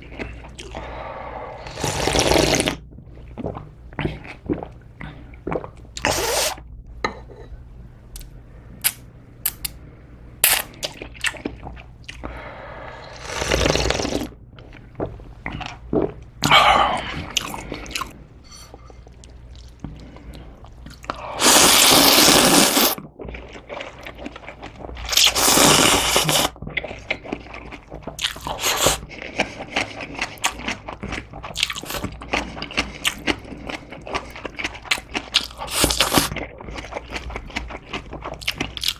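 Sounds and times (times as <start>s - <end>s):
person slurping noodles: 0.6s - 2.8s, 5.5s - 6.6s, 12.8s - 14.3s, 21.2s - 23.0s, 25.1s - 27.6s, 28.2s - 30.6s
chewing: 26.6s - 38.9s.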